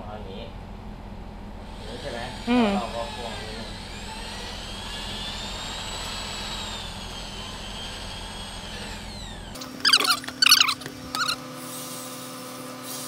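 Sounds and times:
electric drill whining: 1.7 - 11.4
short high squeaks: 9.6 - 11.4.

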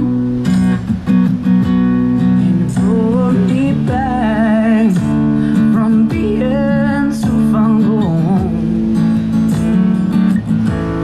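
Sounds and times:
strummed acoustic guitar: 0.0 - 11.0
person singing: 2.4 - 8.9.

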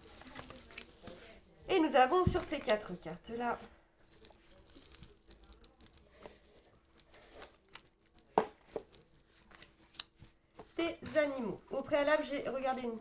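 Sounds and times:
cards sliding on a play mat: 7.1 - 7.6.

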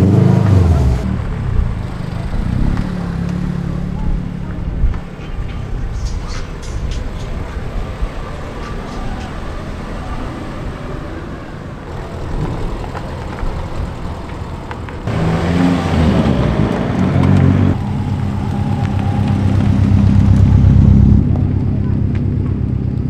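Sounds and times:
car driving off: 0.0 - 23.0
loud turbocharged car engine passing: 15.0 - 22.0.

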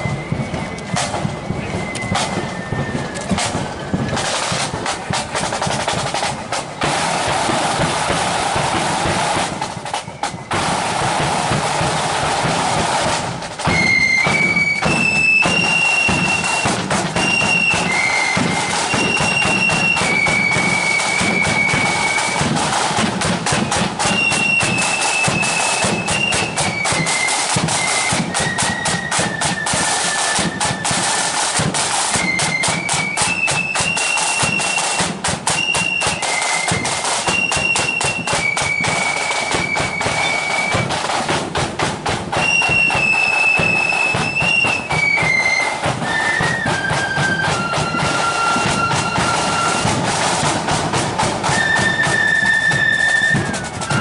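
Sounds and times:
flutes playing high melody: 0.0 - 41.2, 42.3 - 54.0
rapid side-drum strokes: 0.0 - 54.0.

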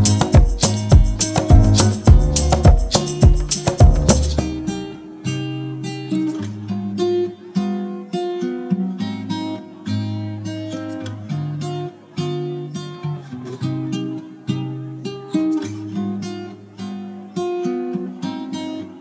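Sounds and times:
held bass notes: 0.0 - 4.8
plucked note melody: 0.0 - 5.0.

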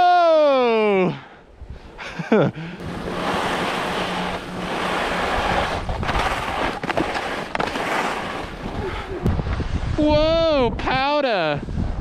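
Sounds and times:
skis hissing over snow: 2.8 - 10.1
wind rushing over microphone: 2.8 - 12.0.

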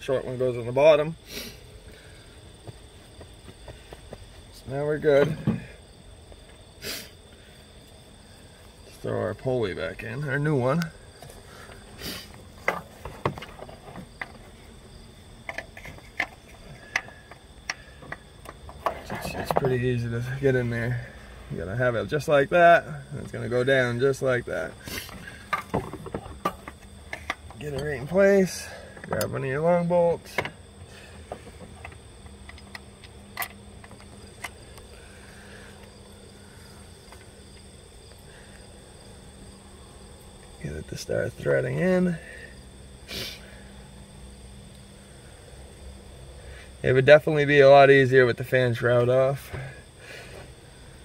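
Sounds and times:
crickets chirring: 0.0 - 51.0
light clicks and knocks of metal parts: 15.4 - 20.6, 25.0 - 35.0.

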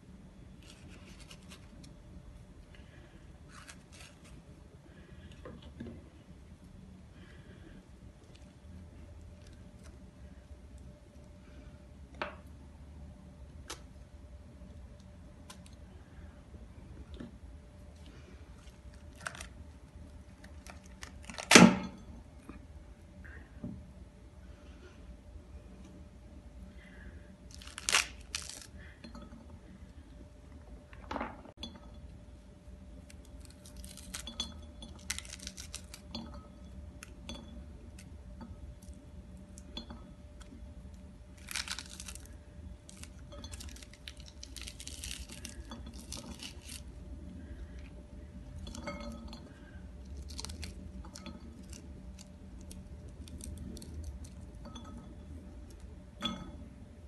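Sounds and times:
pomegranate rind crackling and tearing: 0.5 - 2.0, 3.5 - 4.5, 18.1 - 21.6, 27.5 - 28.8, 33.0 - 36.2, 41.3 - 47.9, 50.0 - 54.5.

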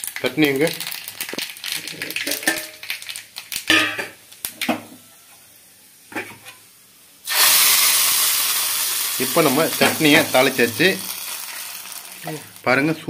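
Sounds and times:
hot oil sizzling: 0.0 - 13.0
metal pans clinking: 2.2 - 2.8.

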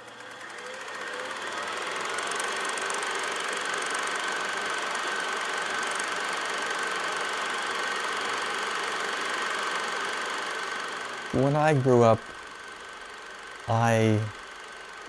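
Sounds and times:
film projector whirring: 0.0 - 13.7, 14.3 - 15.0
high steady whine: 11.2 - 13.0, 13.6 - 15.0.

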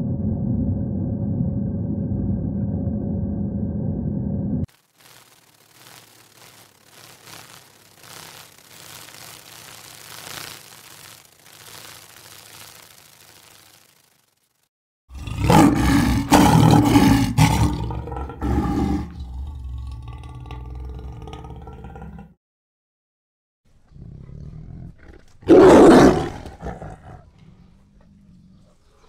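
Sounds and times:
faint hiss: 4.7 - 14.7
lion roaring: 15.1 - 22.4, 23.8 - 29.0.

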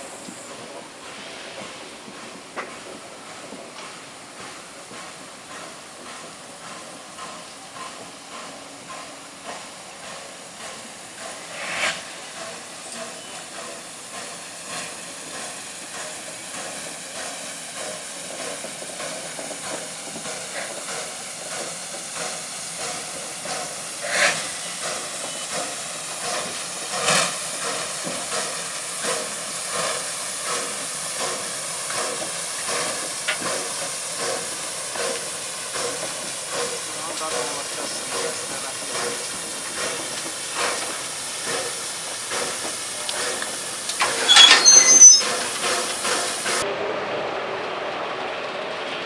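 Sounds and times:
steam locomotive hissing and chuffing: 0.0 - 49.0
sharp metallic clanks: 44.0 - 45.4.

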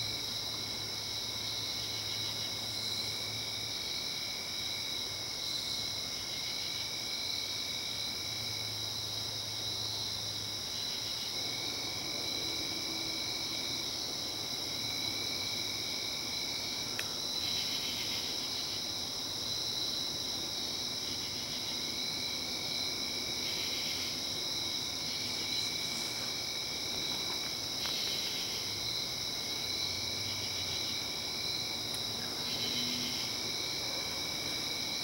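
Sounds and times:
crickets chirring: 0.0 - 35.0
lower insect trill: 0.0 - 35.0.

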